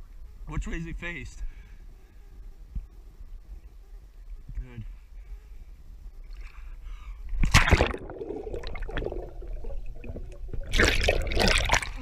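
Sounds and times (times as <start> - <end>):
underwater gurgling and bubbling: 7.4 - 12.0.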